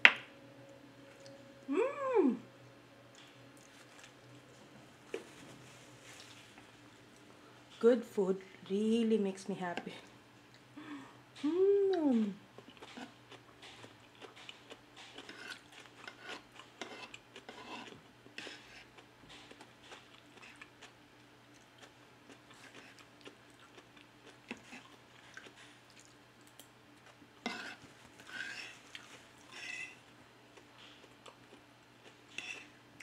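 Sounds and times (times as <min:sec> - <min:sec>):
chewing: 0:03.1 - 0:04.4, 0:12.6 - 0:33.0.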